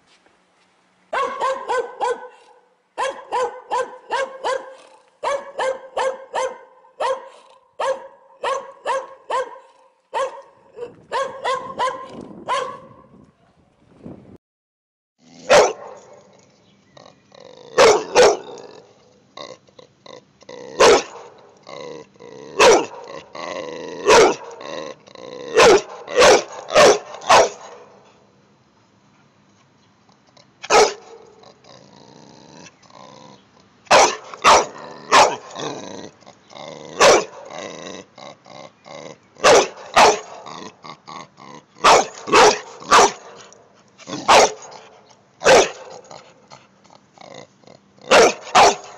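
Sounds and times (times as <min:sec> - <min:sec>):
dog barking: 0:01.1 - 0:13.1, 0:15.5 - 0:16.2, 0:17.8 - 0:18.5, 0:20.8 - 0:21.3, 0:22.6 - 0:23.1, 0:24.0 - 0:24.6, 0:25.6 - 0:28.0, 0:30.6 - 0:31.3, 0:33.9 - 0:35.6, 0:37.0 - 0:37.5, 0:39.4 - 0:40.5, 0:41.8 - 0:43.5, 0:44.2 - 0:44.8, 0:45.4 - 0:46.0, 0:48.1 - 0:48.9.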